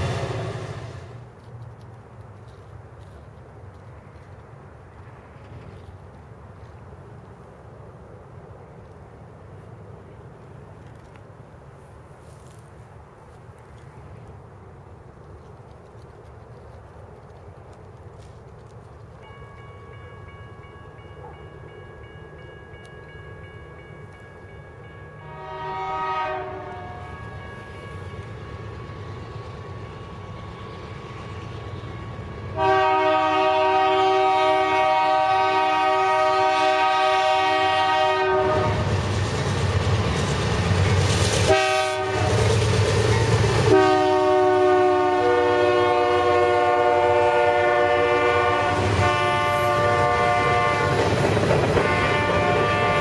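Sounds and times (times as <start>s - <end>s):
freight cars rolling on rails: 0.0s - 25.4s, 36.8s - 44.1s, 45.7s - 53.0s
locomotive engine and wheel rumble: 0.0s - 53.0s
train air horn blasts: 25.2s - 28.0s, 32.5s - 38.9s, 41.5s - 42.4s, 43.7s - 51.1s, 51.7s - 53.0s.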